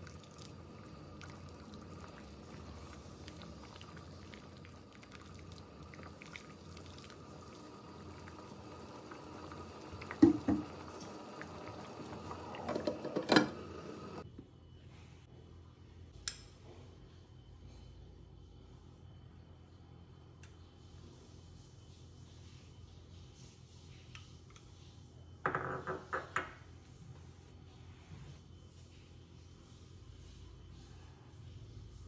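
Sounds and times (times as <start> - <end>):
thick soup bubbling in a pot: 0.0 - 14.2
ladle knocking against pot: 10.1 - 11.1.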